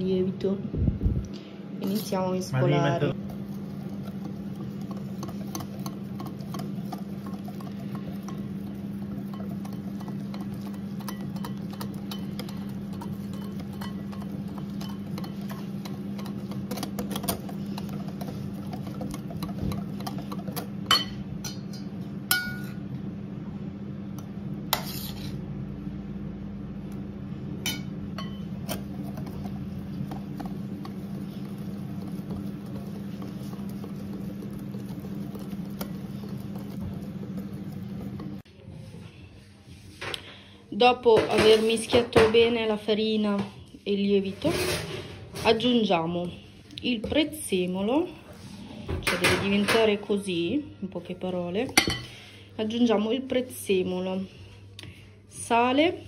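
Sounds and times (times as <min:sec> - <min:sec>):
whisk beating batter: 0:03.1 - 0:22.0, 0:28.2 - 0:38.5.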